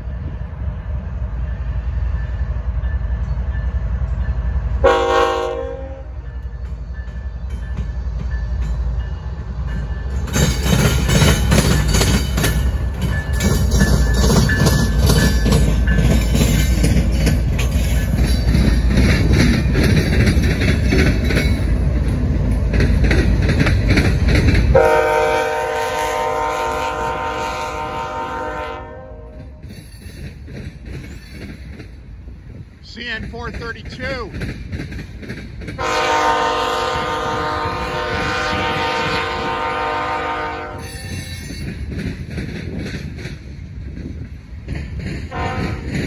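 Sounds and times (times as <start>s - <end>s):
freight train rumbling past: 0.0s - 46.0s
locomotive horn: 4.8s - 6.2s, 24.7s - 29.6s, 35.8s - 41.1s, 45.3s - 45.9s.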